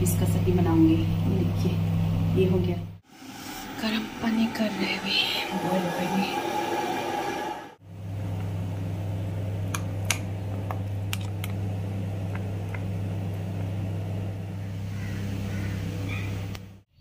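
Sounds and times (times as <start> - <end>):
low electrical hum: 0.0 - 5.7, 7.8 - 16.8.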